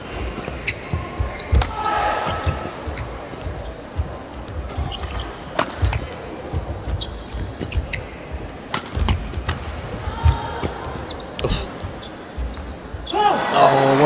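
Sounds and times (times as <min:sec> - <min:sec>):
shoes squeaking on court: 0:00.2 - 0:13.4
shuttlecock hit by rackets: 0:08.7 - 0:09.7.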